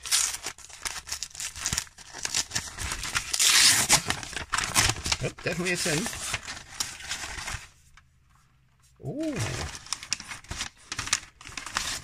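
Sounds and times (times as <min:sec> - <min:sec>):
wrapping paper rustling: 0:00.0 - 0:12.0
person humming: 0:09.0 - 0:09.8.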